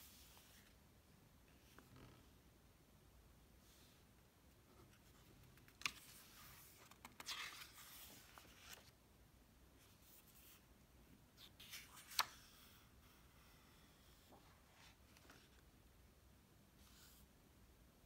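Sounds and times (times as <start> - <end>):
book pages turning: 5.3 - 8.9, 11.4 - 12.6.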